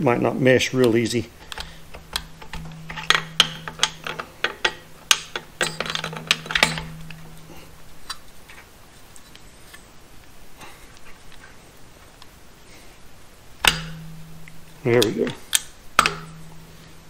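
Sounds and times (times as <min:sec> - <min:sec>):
light metallic clicks and knocks: 0:00.8 - 0:08.7, 0:13.6 - 0:17.0
low hum: 0:01.3 - 0:08.4, 0:13.5 - 0:15.1, 0:15.8 - 0:17.0.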